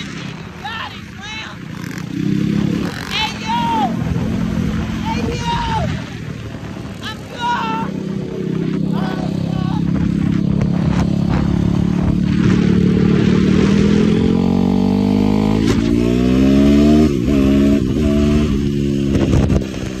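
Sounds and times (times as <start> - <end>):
quad engine under hard throttle: 0.0 - 20.0
wind noise: 0.0 - 20.0.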